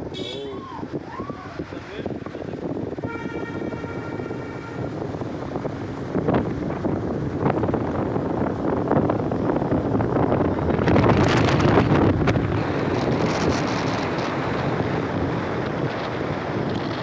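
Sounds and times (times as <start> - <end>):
road noise rumble: 0.0 - 17.0
wind buffeting microphone: 0.0 - 17.0.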